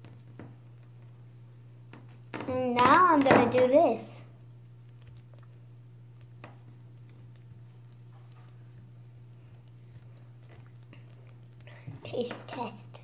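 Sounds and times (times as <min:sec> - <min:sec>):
steady low hum: 0:00.0 - 0:13.0
sticky taffy squishes: 0:04.5 - 0:13.0.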